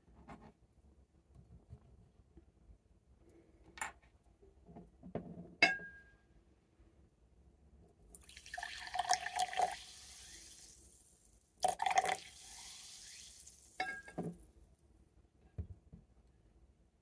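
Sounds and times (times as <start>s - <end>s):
glass clink: 5.6s - 6.1s, 13.8s - 14.2s
fizz hissing: 8.2s - 14.2s
soda water pouring into glass: 8.2s - 14.2s.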